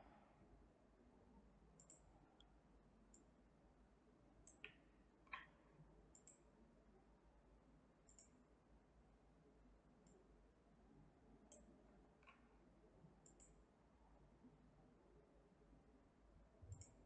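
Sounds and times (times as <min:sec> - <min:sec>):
computer mouse clicks: 0:01.8 - 0:02.5, 0:04.4 - 0:06.4, 0:08.0 - 0:08.4, 0:11.5 - 0:12.5, 0:13.2 - 0:13.6, 0:16.6 - 0:17.0.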